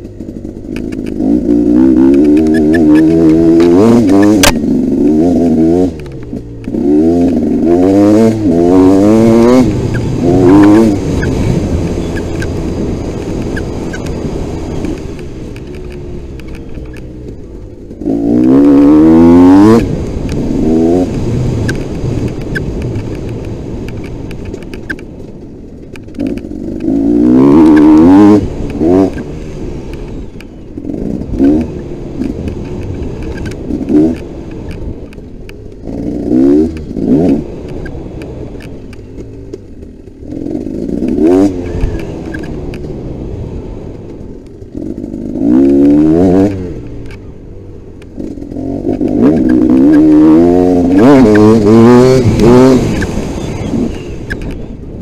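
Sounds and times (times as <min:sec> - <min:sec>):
dirt bike engine revving: 0:00.0 - 0:25.1, 0:25.8 - 0:54.8.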